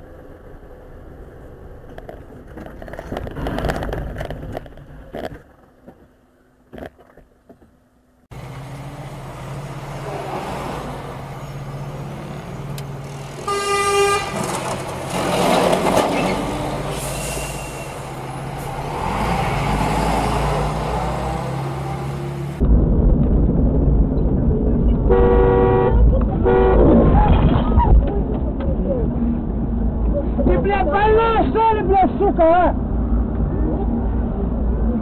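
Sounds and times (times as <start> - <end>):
road and traffic noise: 0.0 - 35.0
loud horn blast: 13.4 - 14.5, 25.1 - 27.1.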